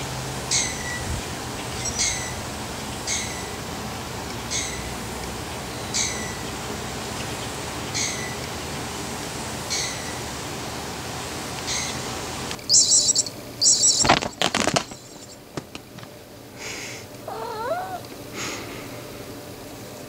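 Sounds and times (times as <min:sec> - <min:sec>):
high-pitched noise bursts: 0:12.6 - 0:14.3
kitten meowing: 0:17.3 - 0:18.1.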